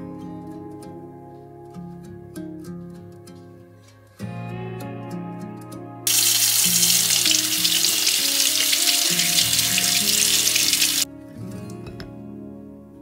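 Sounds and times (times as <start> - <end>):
soft music: 0.0 - 13.0
tap water spraying in sink: 6.1 - 11.1.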